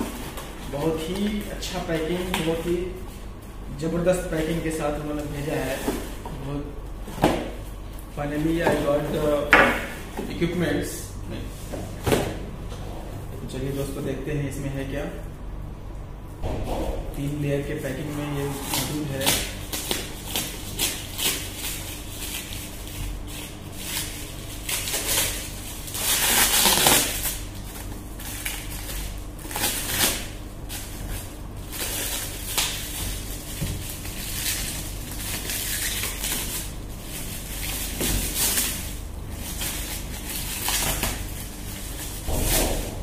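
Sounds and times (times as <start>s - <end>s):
plastic wrap crinkling: 18.6s - 43.0s.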